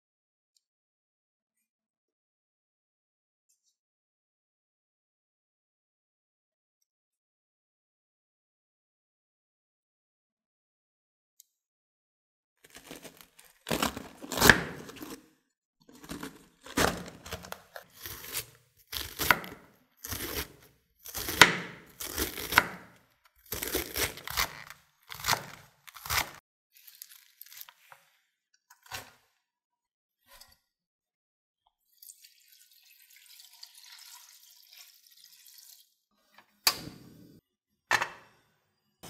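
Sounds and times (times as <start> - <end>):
knife slicing cabbage on board: 12.8 - 15.2, 16.0 - 26.4.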